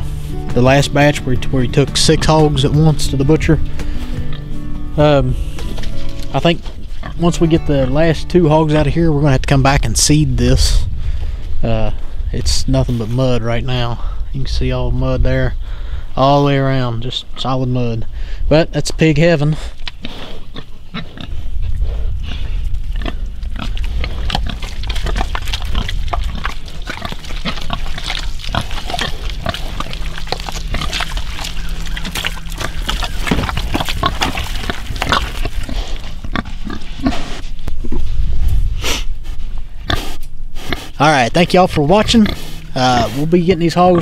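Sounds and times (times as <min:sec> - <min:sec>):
hogs grunting and snuffling: 0:00.0 - 0:10.1, 0:19.0 - 0:38.2, 0:38.8 - 0:44.0
low microphone rumble: 0:00.0 - 0:17.1, 0:21.3 - 0:44.0.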